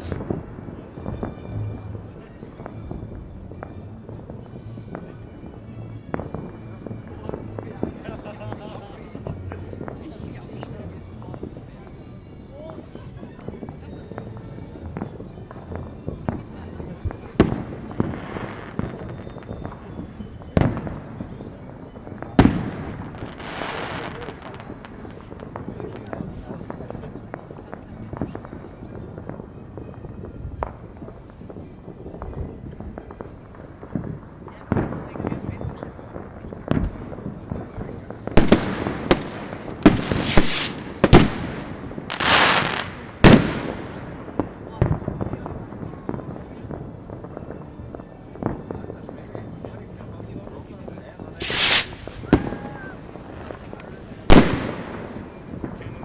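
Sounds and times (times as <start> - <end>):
small firework pops: 0.0 - 11.9, 12.6 - 56.0
firework crackling: 0.0 - 56.0
firework shells bursting: 38.2 - 46.8, 51.4 - 56.0.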